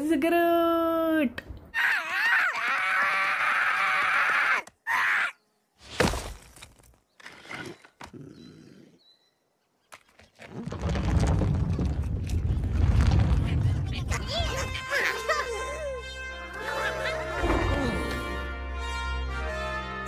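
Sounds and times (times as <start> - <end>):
heavy thud on stony ground: 5.9 - 6.7.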